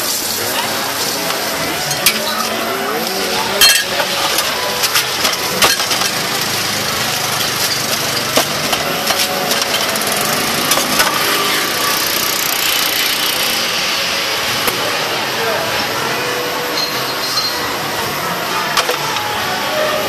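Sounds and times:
small engine drone: 4.4s - 16.8s.

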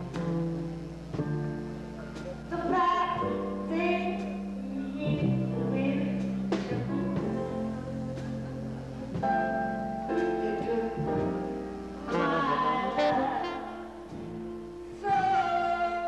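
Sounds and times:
upright bass: 0.0s - 15.4s
person singing: 2.5s - 14.1s, 14.9s - 16.0s
tenor saxophone: 10.5s - 16.0s.

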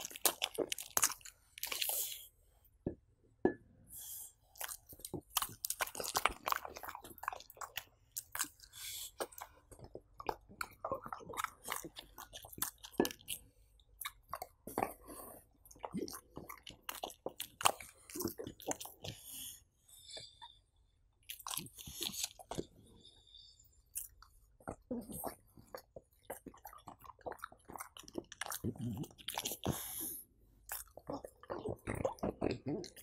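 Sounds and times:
dog chewing and smacking: 4.6s - 13.4s, 24.0s - 33.0s.

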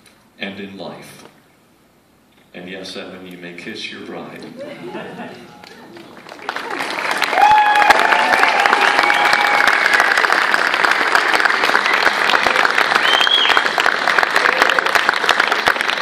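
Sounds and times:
crowd applauding: 4.6s - 16.0s
people cheering: 4.6s - 16.0s
short high cheer: 5.4s - 10.4s, 11.7s - 15.3s.

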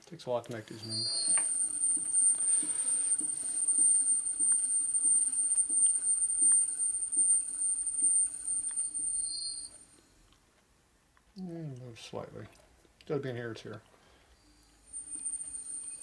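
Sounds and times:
flywheel assembly whine: 0.7s - 9.9s, 14.8s - 16.0s.

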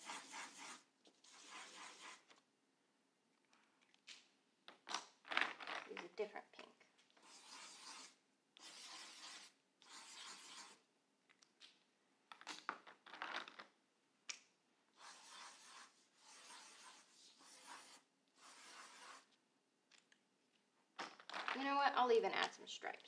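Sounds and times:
marker scribbling on paper: 0.0s - 2.3s, 7.2s - 10.8s, 15.0s - 19.4s.

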